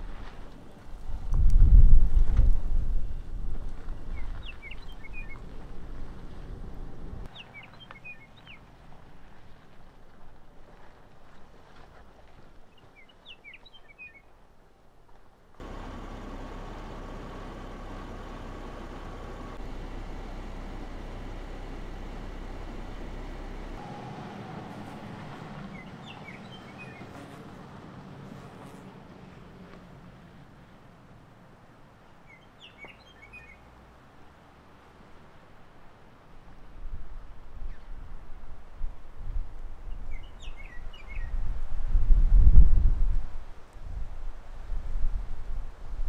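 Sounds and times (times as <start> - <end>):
car driving on gravel trail: 0.0 - 46.0
bird chirps: 3.9 - 5.4, 25.6 - 27.2, 32.3 - 33.6, 40.1 - 41.4
low rumble: 15.6 - 26.6.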